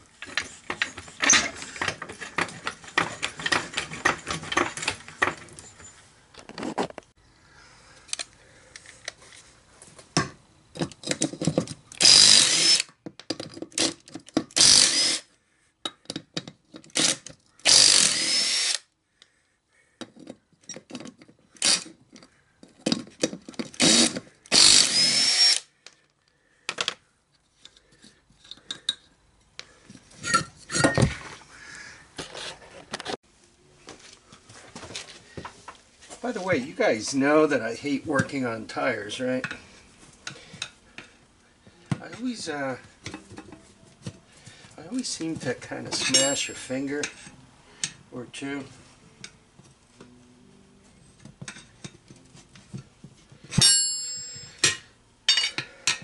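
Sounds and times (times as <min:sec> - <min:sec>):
impact wrench whining: 0:00.2 - 0:05.5, 0:11.9 - 0:13.0, 0:13.7 - 0:15.3, 0:16.8 - 0:18.9, 0:21.5 - 0:22.0, 0:23.6 - 0:25.8.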